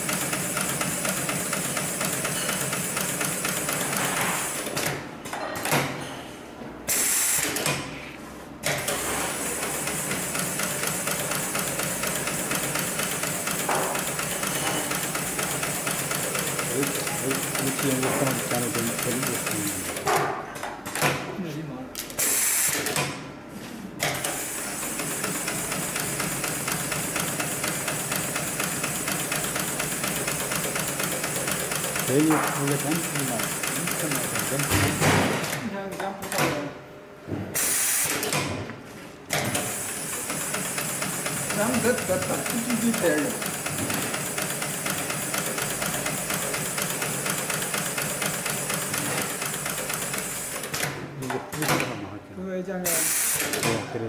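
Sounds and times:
sewing machine stitching rapidly: 0:00.0 - 0:05.0, 0:08.7 - 0:20.1, 0:24.2 - 0:35.6, 0:39.5 - 0:50.9.

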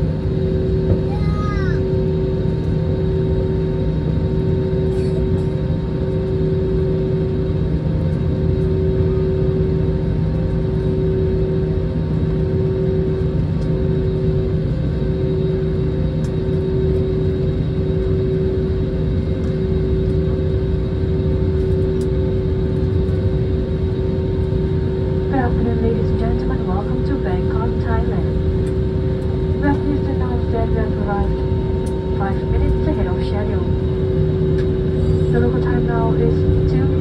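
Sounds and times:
jet engine rumbling at low power: 0:00.0 - 0:37.0.

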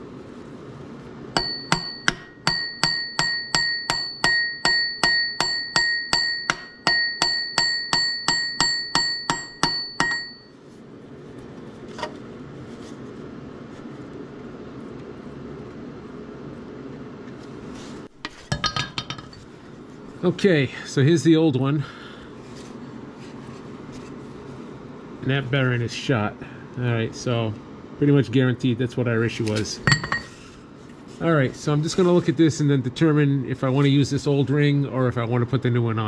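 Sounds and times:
hammer blows on steel ringing: 0:01.4 - 0:10.5.

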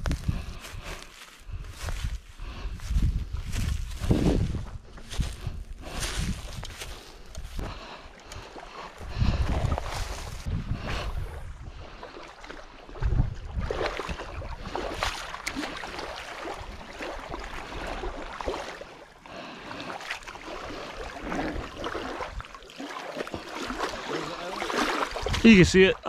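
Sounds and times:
wind rumble on microphone: 0:00.0 - 0:07.9, 0:09.0 - 0:12.0, 0:12.9 - 0:15.2
water lapping and splashing: 0:00.0 - 0:26.0.

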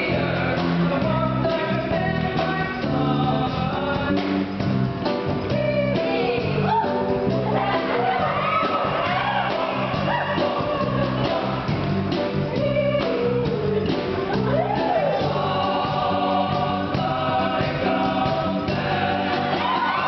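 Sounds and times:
men's choir singing: 0:00.0 - 0:04.2, 0:07.6 - 0:12.0, 0:14.4 - 0:20.0
keyboard: 0:00.0 - 0:20.0.

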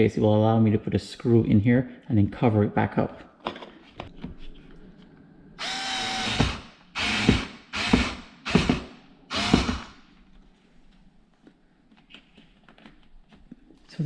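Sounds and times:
cordless screwdriver driving screw: 0:05.6 - 0:09.9.

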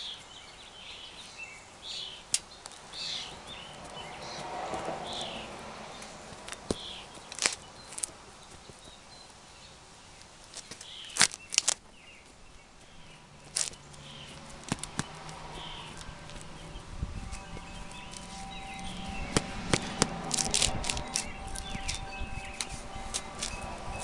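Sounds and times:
small birds chirping: 0:00.0 - 0:24.0
shoes tapping on concrete: 0:06.0 - 0:09.0, 0:10.5 - 0:23.7.

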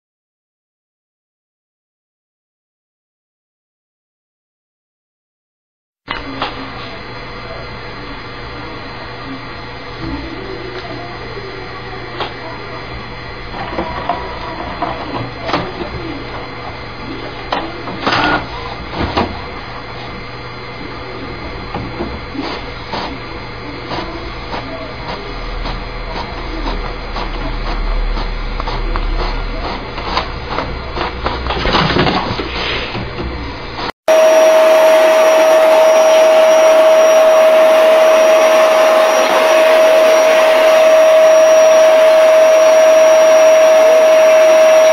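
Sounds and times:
steady hum: 0:06.1 - 0:44.9
vacuum cleaner running: 0:06.1 - 0:44.9
inkjet printer whirring and clicking: 0:10.1 - 0:33.6.

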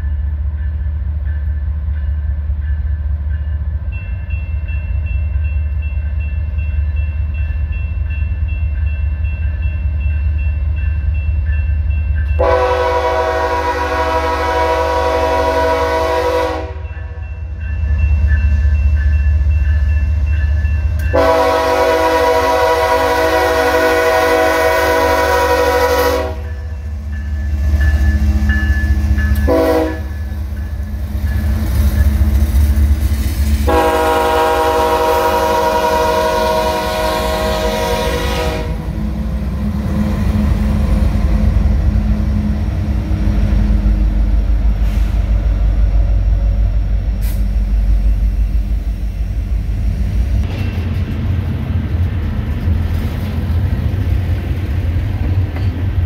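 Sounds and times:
diesel locomotive rumble: 0:00.0 - 0:56.0
locomotive air horn blasts: 0:12.4 - 0:16.9, 0:21.1 - 0:26.6, 0:29.5 - 0:30.2, 0:33.6 - 0:39.0.

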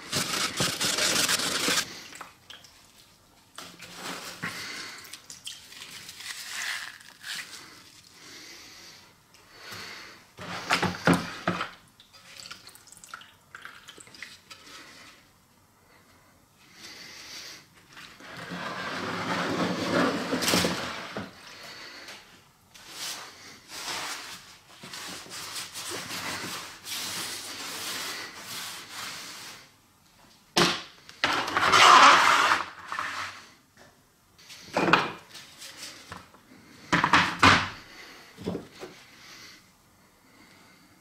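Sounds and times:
knocks and scrapes of objects: 0:00.0 - 0:01.9, 0:18.2 - 0:21.3.

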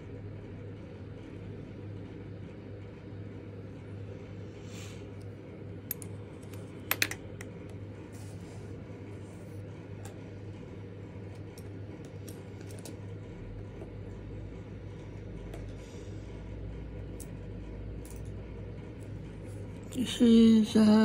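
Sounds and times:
steady low hum: 0:00.0 - 0:21.0
pens clicking and tapping on desk: 0:05.9 - 0:07.5.

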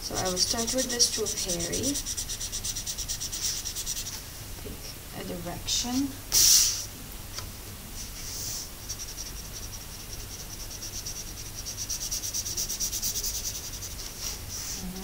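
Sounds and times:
marker scratching on paper: 0:00.1 - 0:04.2, 0:08.2 - 0:15.0.

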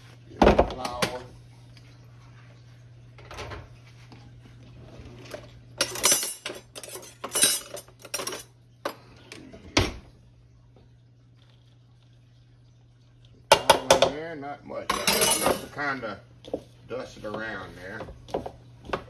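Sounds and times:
dishes and utensils clattering: 0:05.1 - 0:09.0, 0:14.9 - 0:16.6.

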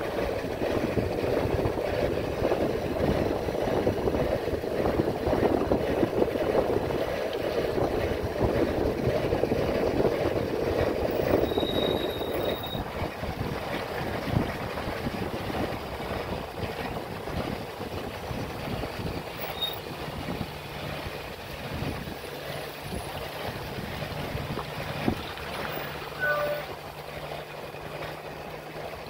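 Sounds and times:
wind buffeting microphone: 0:00.0 - 0:29.0
high thin tone: 0:26.0 - 0:26.8.

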